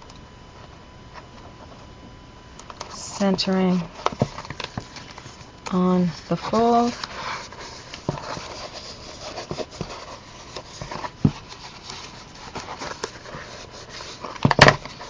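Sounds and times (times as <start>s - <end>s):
hands rubbing stiff paper: 4.5s - 15.0s.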